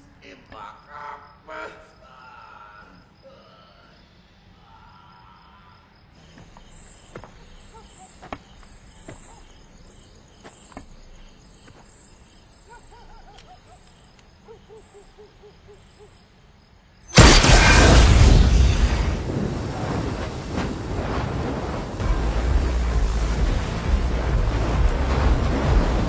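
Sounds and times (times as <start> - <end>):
insects chirping: 0.0 - 26.0
faint sharp clicks: 13.2 - 14.4
loud blast: 17.1 - 26.0.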